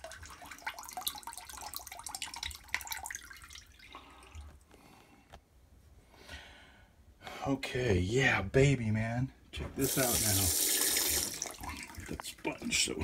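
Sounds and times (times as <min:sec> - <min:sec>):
water dripping into bucket: 0:00.0 - 0:04.5, 0:09.8 - 0:12.7.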